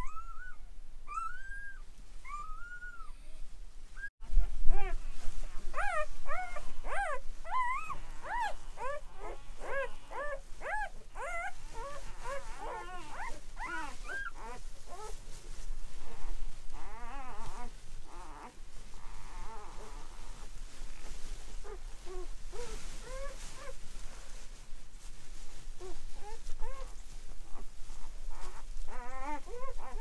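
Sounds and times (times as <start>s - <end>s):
puppies squealing and whimpering: 0.0s - 3.4s, 5.8s - 15.2s, 27.5s - 30.0s.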